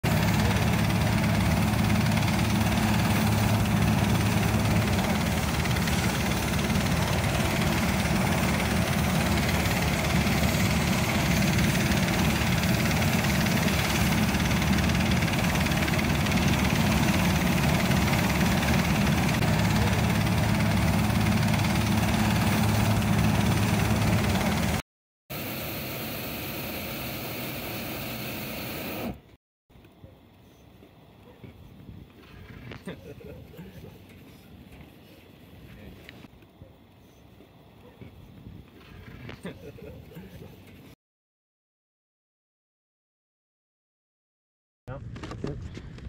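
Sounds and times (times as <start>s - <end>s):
engine-driven fan running: 0.0s - 29.3s.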